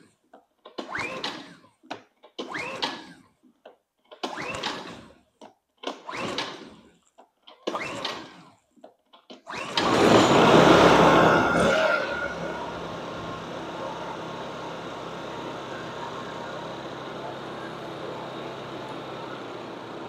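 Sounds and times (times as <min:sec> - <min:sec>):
engine cranking without firing: 0:00.0 - 0:20.0
recoil starter pulls: 0:00.6 - 0:20.0
generator engine running: 0:09.7 - 0:20.0.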